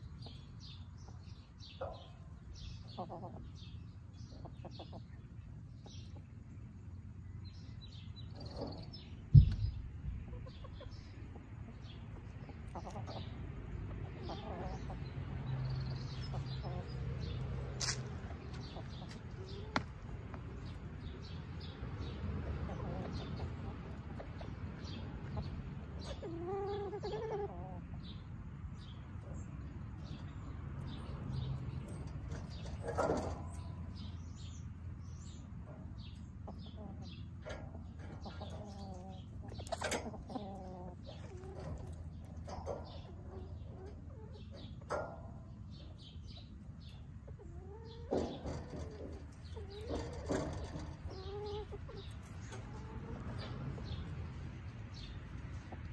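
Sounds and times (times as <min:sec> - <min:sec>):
hens clucking: 0:00.0 - 0:07.1, 0:08.1 - 0:55.9
low thump: 0:09.3 - 0:10.0.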